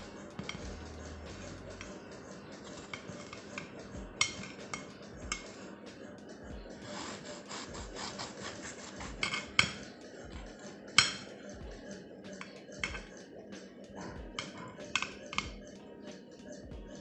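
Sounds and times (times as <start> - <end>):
knife sawing through bread crust: 6.8 - 9.5.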